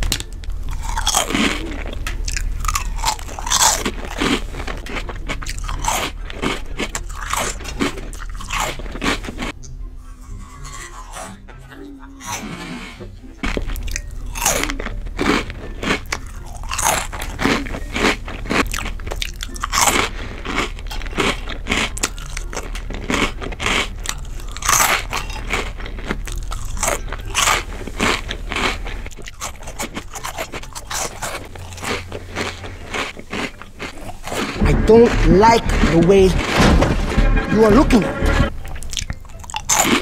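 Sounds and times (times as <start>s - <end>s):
person chewing crunchy snacks: 0.0s - 40.0s.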